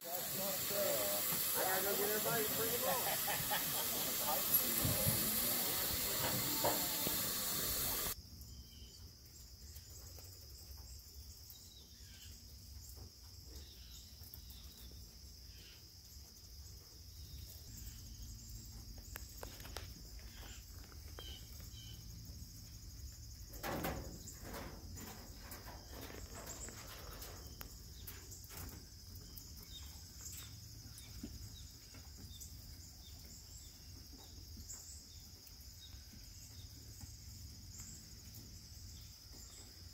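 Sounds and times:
steam hissing: 0.0s - 8.2s
insect drone: 0.0s - 13.0s, 13.6s - 39.9s
faint clicks and rustles: 23.5s - 29.5s.

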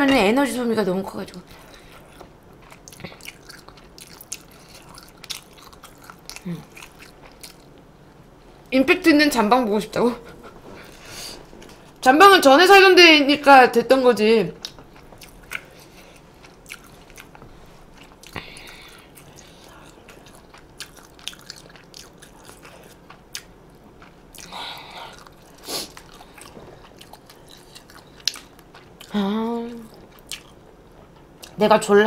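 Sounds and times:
wet chewing: 1.6s - 7.8s, 14.6s - 31.6s.

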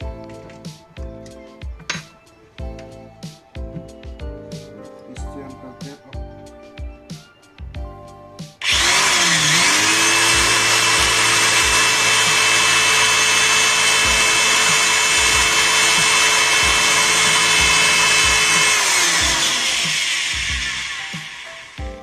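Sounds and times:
electric drill boring into wood: 8.6s - 21.9s.

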